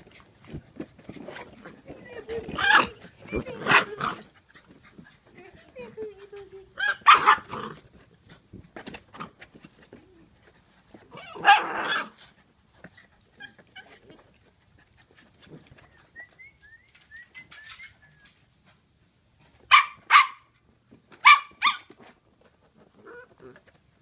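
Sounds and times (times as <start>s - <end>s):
puppies playing: 0.0s - 19.8s, 20.5s - 24.0s
puppy barking: 6.8s - 7.6s, 19.7s - 20.5s, 21.2s - 21.9s.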